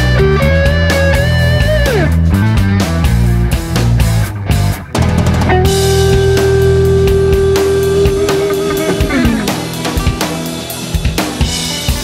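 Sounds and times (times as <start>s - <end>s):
sustained bass: 0.0s - 10.9s
guitar note bending: 3.9s - 11.0s
drum hits: 5.0s - 11.4s.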